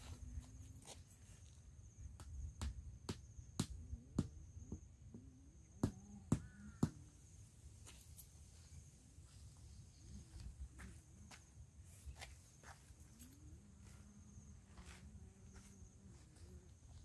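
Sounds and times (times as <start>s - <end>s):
high insect drone: 0.0s - 17.0s
footsteps on dry dirt: 9.2s - 17.0s.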